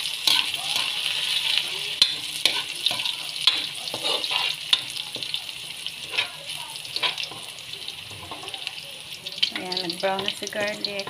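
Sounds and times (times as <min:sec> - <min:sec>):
spatula scraping pan: 0:00.0 - 0:05.4, 0:06.0 - 0:08.6
garlic sizzling in hot oil: 0:00.0 - 0:11.0.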